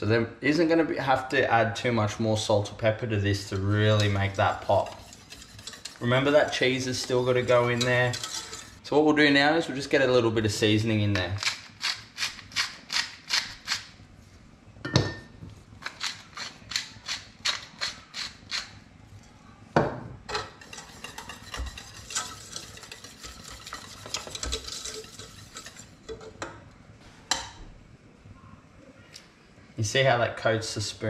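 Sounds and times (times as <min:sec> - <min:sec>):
spoon scraping a metal saucepan: 0:03.4 - 0:08.8, 0:20.3 - 0:26.4
pepper mill grinding: 0:11.1 - 0:14.0, 0:15.8 - 0:18.8.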